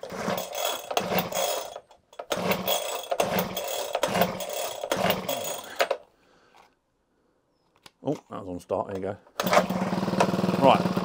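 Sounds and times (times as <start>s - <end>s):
small engine pull-started and running: 0.0s - 6.0s, 9.4s - 11.0s.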